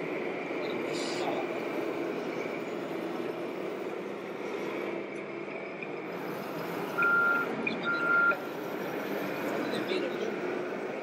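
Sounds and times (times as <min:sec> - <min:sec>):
model truck engine hum: 0:00.0 - 0:11.0
reverse warning beeps: 0:06.9 - 0:08.4.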